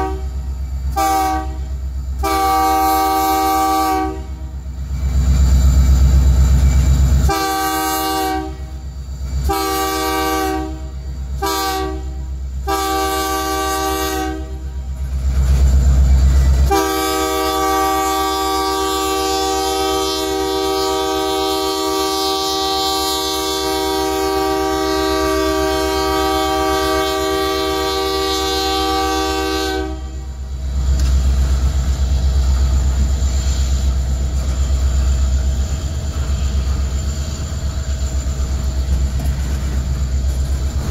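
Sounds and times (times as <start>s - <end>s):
locomotive horn blasts: 0.0s - 4.5s, 7.3s - 8.8s, 9.4s - 14.8s, 16.6s - 30.4s
freight cars rumbling and clattering: 34.0s - 40.9s.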